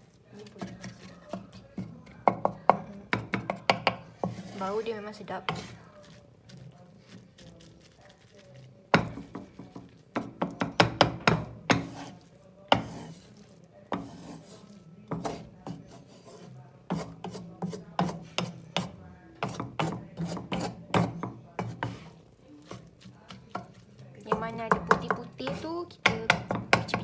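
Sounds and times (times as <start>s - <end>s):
spatula scraping rice in wok: 3.5s - 24.1s.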